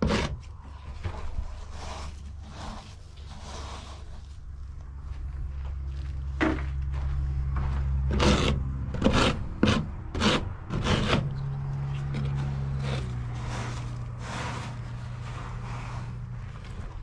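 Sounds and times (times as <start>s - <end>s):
steady low hum: 0.3s - 17.0s
plastic scoop scraping litter granules: 1.1s - 4.4s, 10.2s - 17.0s.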